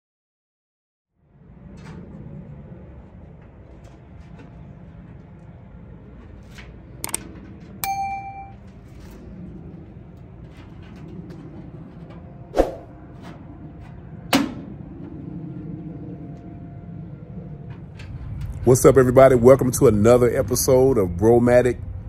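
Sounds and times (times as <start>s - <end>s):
low background hum: 1.2s - 22.0s
short beep: 7.8s - 8.6s.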